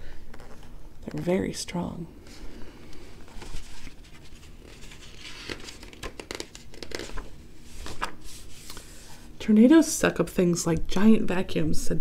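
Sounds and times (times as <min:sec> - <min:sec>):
paper crinkles and flaps: 0:03.2 - 0:08.7
paper pages rustling: 0:03.2 - 0:09.1.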